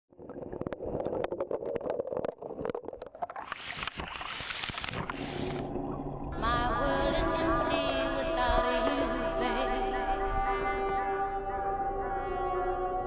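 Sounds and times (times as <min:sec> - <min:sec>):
raindrops hitting water underwater: 0:00.1 - 0:06.8.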